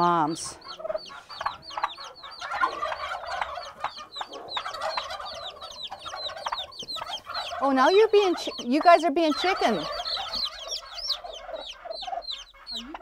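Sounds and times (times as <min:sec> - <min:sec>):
turkey hens clucking: 0:00.0 - 0:13.0
turkey poults peeping: 0:00.0 - 0:13.0.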